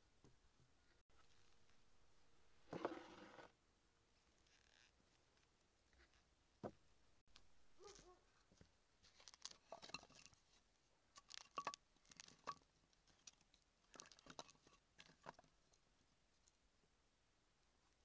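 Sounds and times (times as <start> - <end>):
wooden sticks knocking together: 11.2 - 12.6.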